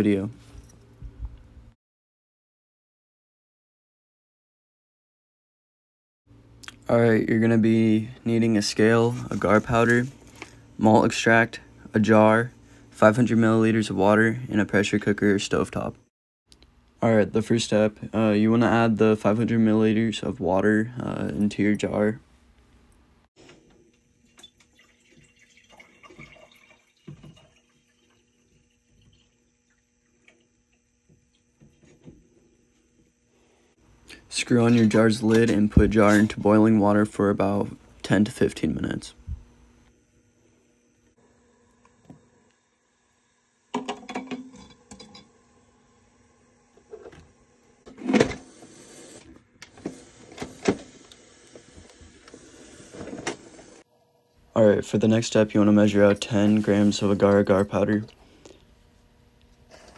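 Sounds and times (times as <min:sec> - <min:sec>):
faint steady hum: 0:06.3 - 0:59.9
water pouring into glass jar: 0:24.2 - 0:30.5.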